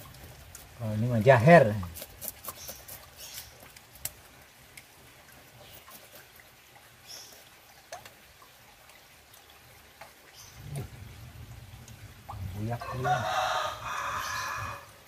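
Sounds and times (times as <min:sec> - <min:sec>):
knife scraping fish scales: 0:01.7 - 0:03.7.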